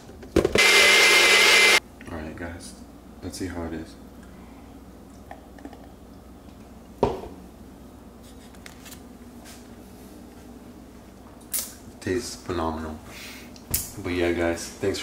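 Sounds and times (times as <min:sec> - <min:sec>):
low room hum: 0:01.8 - 0:15.0.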